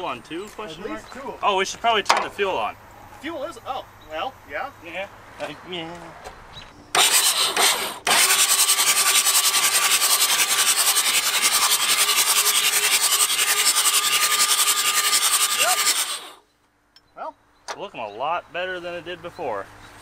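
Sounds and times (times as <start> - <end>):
diesel engine cranking: 6.9 - 16.4
starter motor whine: 7.0 - 16.4.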